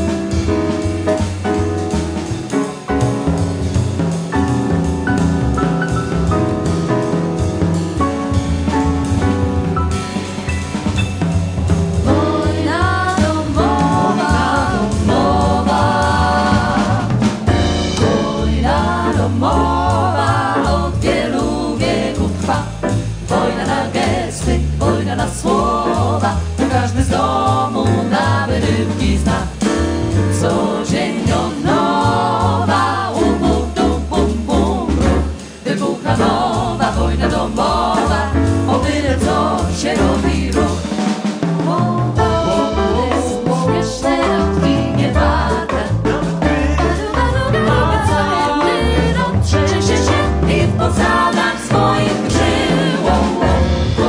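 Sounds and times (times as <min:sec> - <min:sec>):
double bass: 0:00.0 - 0:54.0
drums: 0:00.0 - 0:54.0
piano: 0:00.0 - 0:54.0
vocal quartet singing in harmony: 0:12.0 - 0:54.0.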